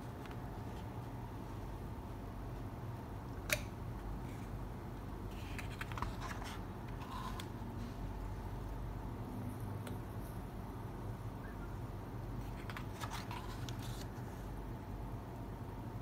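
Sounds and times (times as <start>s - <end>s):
steady low hum: 0.0s - 16.0s
pages crackling as turned: 5.4s - 7.5s, 12.4s - 14.4s.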